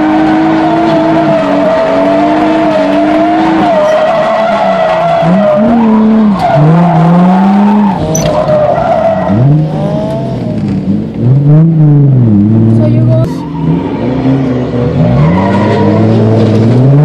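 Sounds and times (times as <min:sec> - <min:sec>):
tires squealing: 0:00.0 - 0:11.7, 0:13.2 - 0:17.0
car engine revving: 0:00.0 - 0:17.0.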